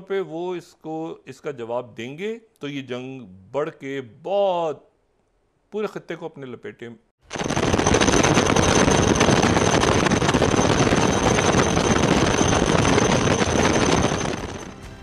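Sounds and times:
high-pitched whine: 7.3 - 14.8
rushing engine noise: 7.3 - 14.8.

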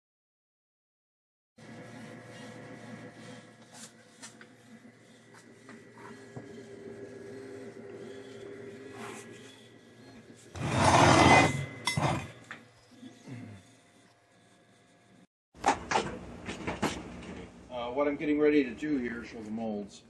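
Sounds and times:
metal part scraping on wood: 10.5 - 12.5.

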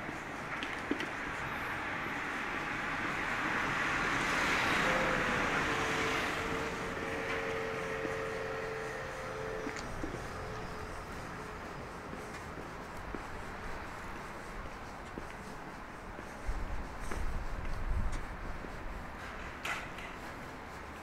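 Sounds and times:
vehicle driving past: 2.7 - 12.0.

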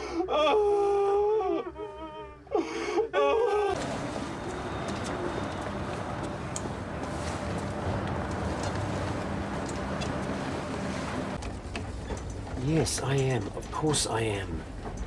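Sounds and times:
woman sobbing and wailing: 0.0 - 3.8
outdoor background hiss and rumble: 0.0 - 15.0.

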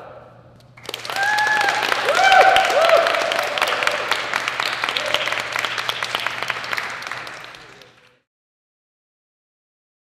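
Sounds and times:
crowd applauding: 0.8 - 8.3.

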